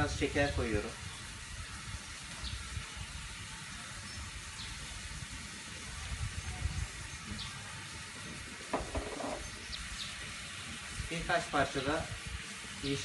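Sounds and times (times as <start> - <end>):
chicken sizzling in a pan: 0.0 - 13.0.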